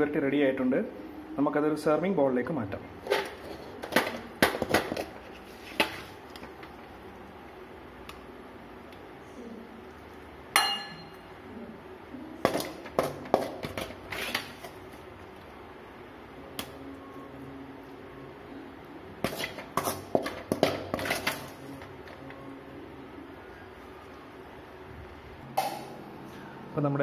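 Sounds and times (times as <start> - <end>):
spatula clinking on glass bowl: 10.6 - 11.2.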